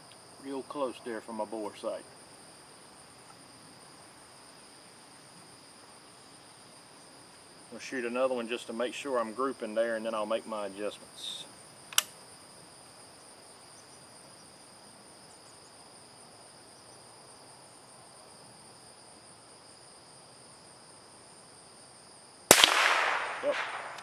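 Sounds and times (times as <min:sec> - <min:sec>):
insects droning: 0:00.0 - 0:24.0
rifle shot: 0:22.5 - 0:24.0.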